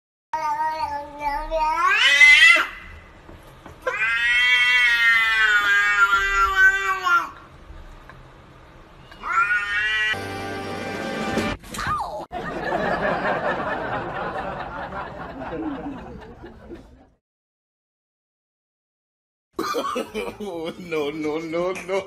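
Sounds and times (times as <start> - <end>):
cat meowing: 3.9 - 7.4, 9.1 - 10.2.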